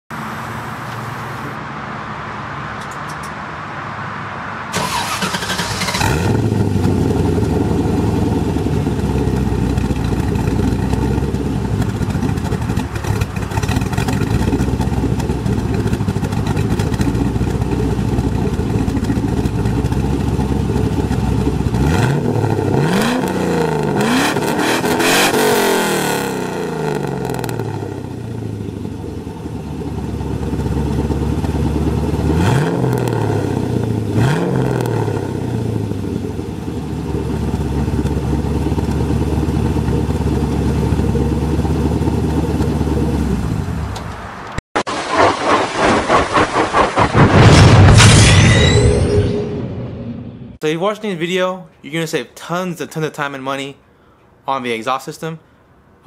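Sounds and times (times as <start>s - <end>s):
car engine revving: 0.1s - 48.0s
vee eight engine starting: 4.7s - 7.6s
car engine idling: 4.7s - 22.9s, 27.2s - 32.5s, 35.3s - 44.4s.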